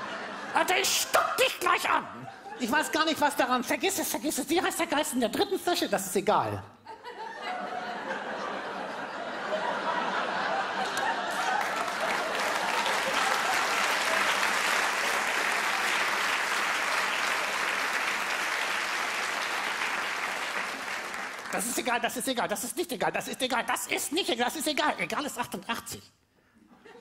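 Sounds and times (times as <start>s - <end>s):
audience laughing: 0.0s - 3.3s, 6.8s - 21.7s
audience applauding: 10.5s - 22.0s.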